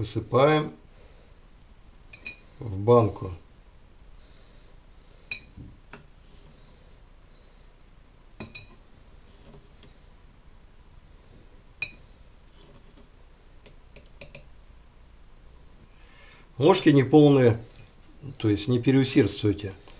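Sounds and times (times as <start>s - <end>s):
glassware clinking: 2.1s - 2.5s, 5.3s - 5.6s, 8.4s - 8.8s, 11.8s - 12.0s.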